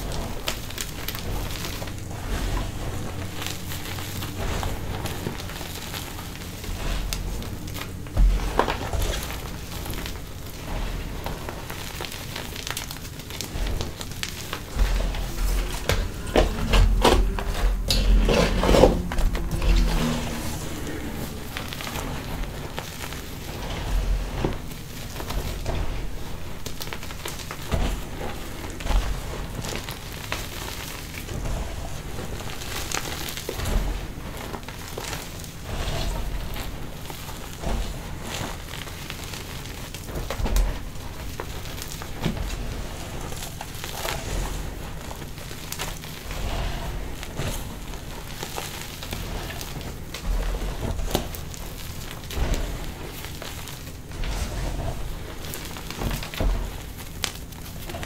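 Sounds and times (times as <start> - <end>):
chalk chunks crunching and crackling: 0.0 - 58.0
dull low thumps: 13.5 - 26.3.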